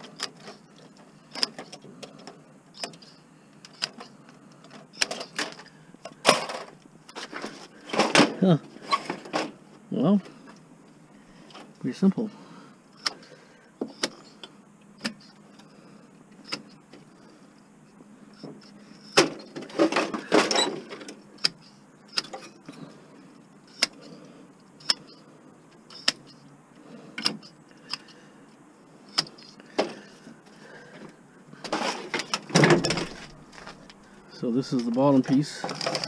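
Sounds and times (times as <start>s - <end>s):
metal and plastic parts clattering: 0.0s - 9.6s, 18.4s - 22.9s, 30.9s - 34.0s, 34.7s - 36.0s.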